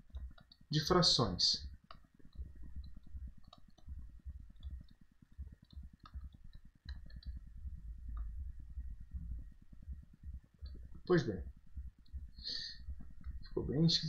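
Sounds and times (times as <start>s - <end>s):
faint low rumble: 0.0s - 14.0s
pen tapping on screen: 1.8s - 7.4s.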